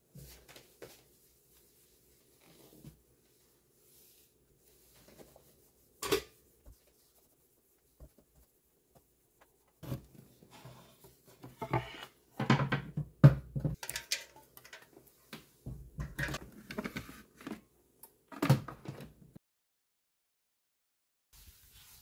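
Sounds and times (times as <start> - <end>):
appliances knocking on countertop: 11.6 - 13.8.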